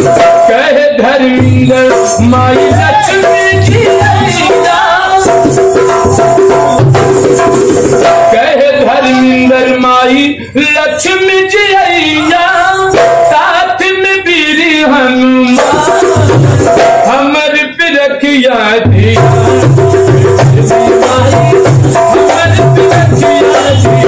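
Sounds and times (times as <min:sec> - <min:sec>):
man singing: 0:00.0 - 0:07.4, 0:08.0 - 0:24.0
barrel drum beating: 0:01.3 - 0:08.4, 0:15.6 - 0:17.1, 0:18.9 - 0:24.0.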